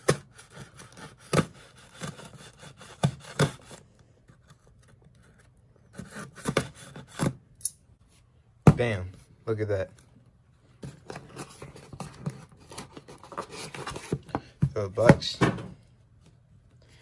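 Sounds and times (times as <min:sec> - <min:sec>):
scissors cutting cardboard: 0:00.0 - 0:07.4.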